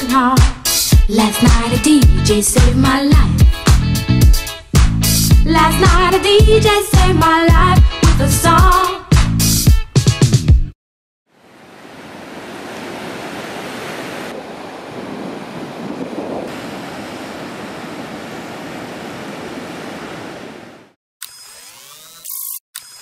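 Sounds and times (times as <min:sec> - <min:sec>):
surf rushing on a beach: 0:11.4 - 0:21.0
wind on microphone: 0:13.2 - 0:20.8.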